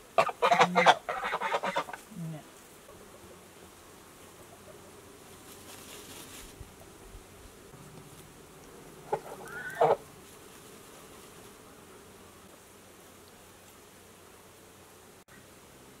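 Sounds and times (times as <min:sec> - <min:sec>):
steady buzzing hum: 0:00.0 - 0:16.0
chicken squawking: 0:00.2 - 0:02.0, 0:09.1 - 0:10.0.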